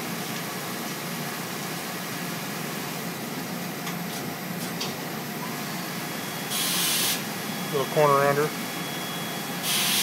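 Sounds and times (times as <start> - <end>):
coolant spray hiss and spindle hum: 0.0 - 10.0.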